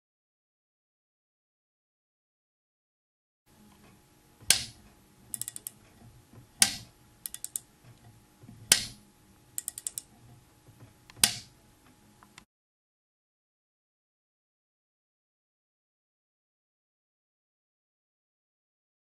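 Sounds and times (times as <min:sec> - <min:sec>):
torque wrench clicking: 0:05.3 - 0:05.8, 0:06.6 - 0:07.6, 0:09.6 - 0:10.1.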